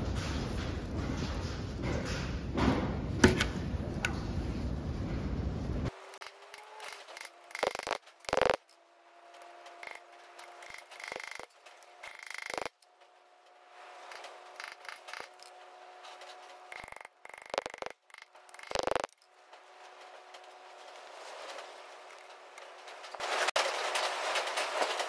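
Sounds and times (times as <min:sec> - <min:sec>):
metal tool scraping and clicking: 0:06.2 - 0:08.8, 0:09.4 - 0:12.9, 0:14.1 - 0:19.3.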